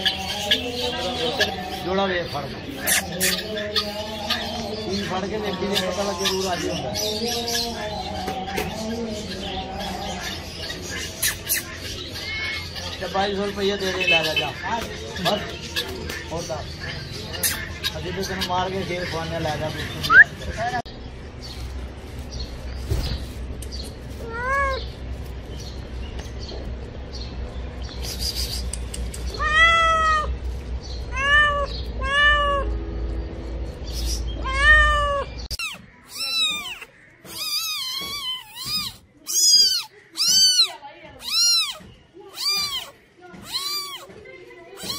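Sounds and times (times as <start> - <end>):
low background rumble: 19.9 - 36.0
cat meowing: 24.2 - 24.9, 29.4 - 30.3, 31.1 - 32.8, 34.4 - 44.1.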